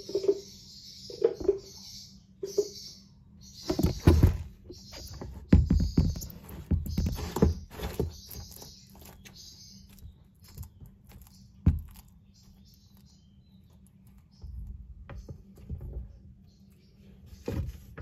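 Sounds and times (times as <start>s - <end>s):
skink chewing with crunches: 6.9s - 14.4s.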